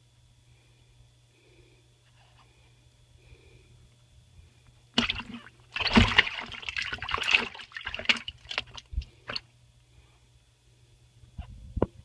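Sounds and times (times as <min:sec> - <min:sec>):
water splashing in a plastic tub: 0:05.0 - 0:09.5.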